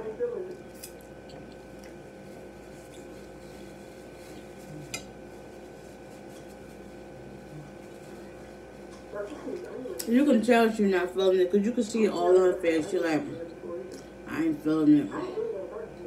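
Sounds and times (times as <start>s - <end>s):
low room hum: 0.0s - 16.0s
paper napkin rustling: 2.2s - 9.7s.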